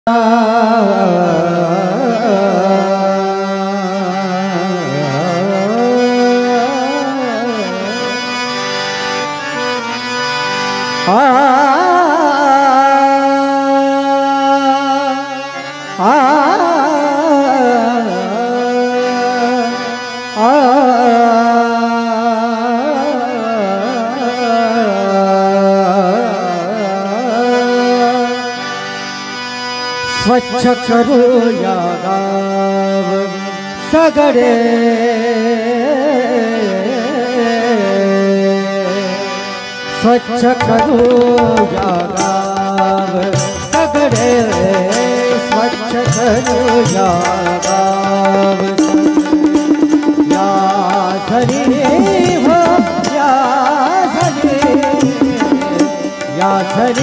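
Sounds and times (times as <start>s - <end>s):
harmonium holding notes: 0.1s - 57.0s
person singing wordless wavering vocal: 40.2s - 57.0s.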